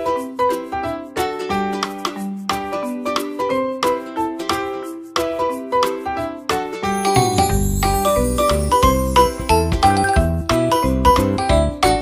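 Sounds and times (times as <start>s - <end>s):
ringing keyboard melody: 6.8s - 12.0s.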